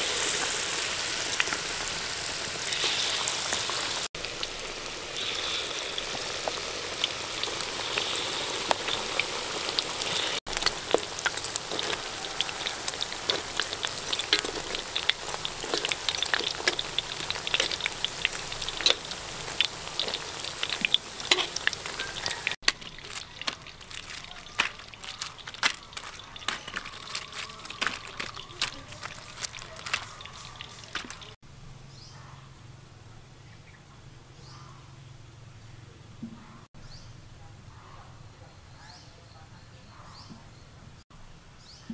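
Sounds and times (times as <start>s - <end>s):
deep frying sizzle and crackle: 0.0s - 31.4s.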